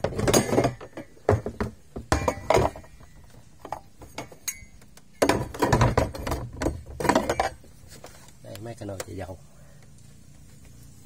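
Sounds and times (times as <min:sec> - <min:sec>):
irregular knocks and clinks: 0:00.0 - 0:07.7.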